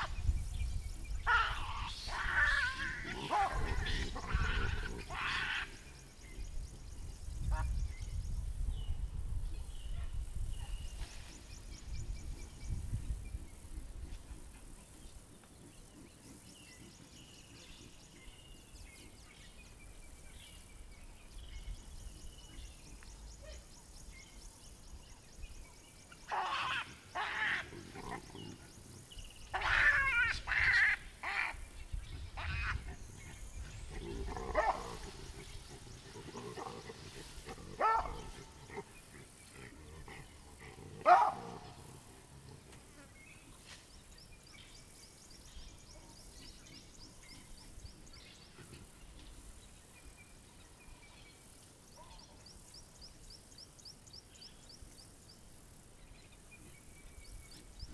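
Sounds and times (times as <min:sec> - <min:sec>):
baboons screaming and barking: 0:01.2 - 0:06.0, 0:26.2 - 0:28.6, 0:29.4 - 0:42.0.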